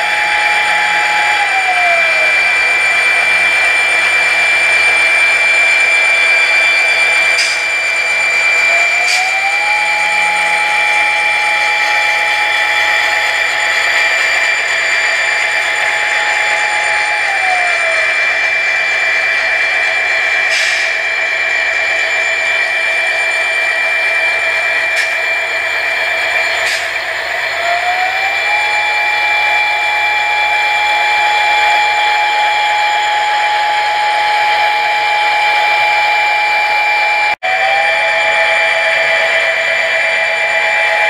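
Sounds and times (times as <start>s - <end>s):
model locomotive engine whine: 0.0s - 41.0s.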